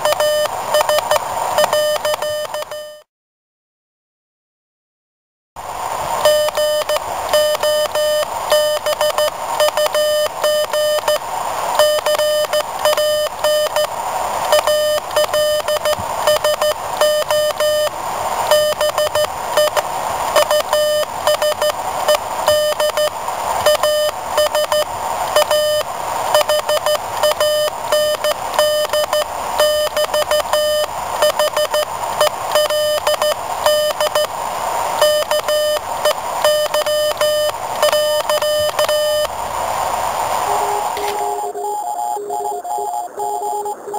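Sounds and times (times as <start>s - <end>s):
morse code beeps: 0.0s - 3.0s, 6.2s - 11.2s, 11.8s - 13.9s, 14.5s - 17.9s, 18.5s - 19.8s, 20.4s - 34.3s, 35.0s - 39.3s, 40.5s - 43.9s
hiss: 38.5s - 41.4s.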